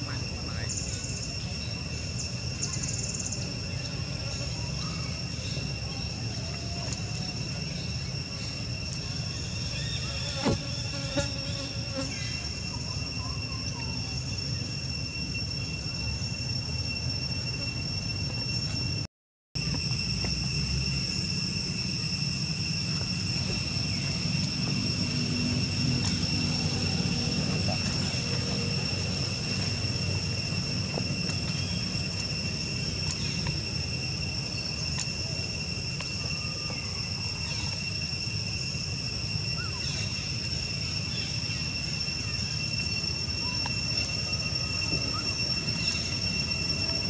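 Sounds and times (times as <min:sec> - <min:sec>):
constant low rumble: 0:00.0 - 0:47.0
high-pitched insect drone: 0:00.0 - 0:47.0
faint clicks and chirps: 0:45.7 - 0:46.1.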